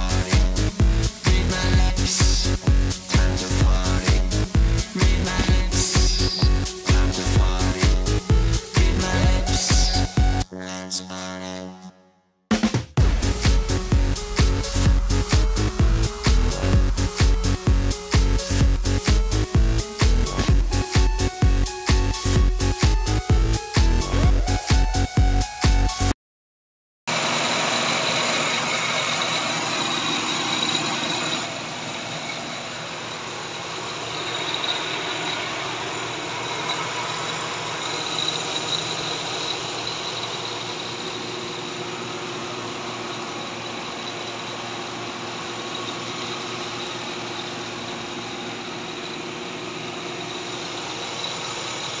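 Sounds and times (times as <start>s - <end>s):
high whine: 0.0s - 12.0s, 13.0s - 25.5s, 27.1s - 52.0s
engine idling: 27.1s - 52.0s.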